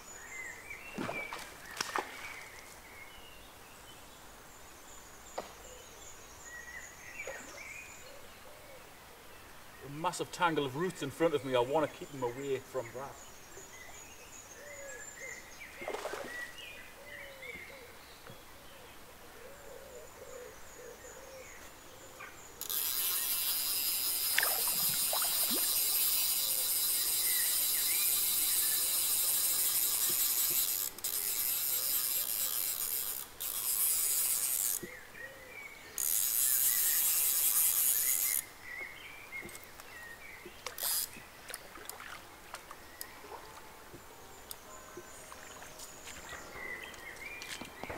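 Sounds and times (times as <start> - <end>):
fishing reel ratchet rattling: 22.6 - 34.9, 36.0 - 38.4, 40.8 - 41.2.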